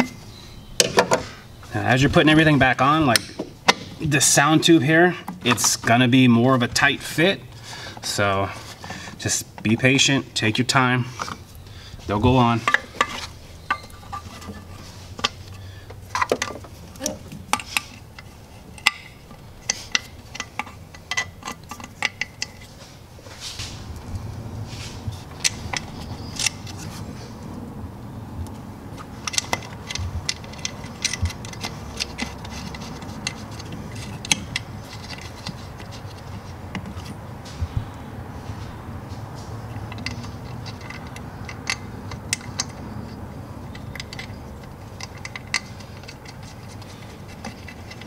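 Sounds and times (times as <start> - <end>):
low steady hum: 0.0 - 48.0
clicks and clinks of engine parts: 2.8 - 6.9, 12.4 - 24.4, 25.1 - 27.5, 28.4 - 48.0.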